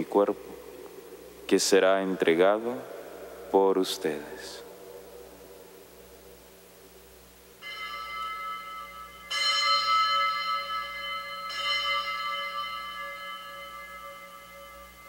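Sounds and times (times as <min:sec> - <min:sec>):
altar bells ringing: 0:07.6 - 0:15.0.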